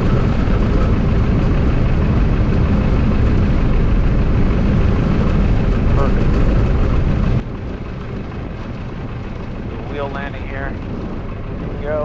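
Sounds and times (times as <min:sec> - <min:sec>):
aircraft engine idling: 0:00.0 - 0:12.0.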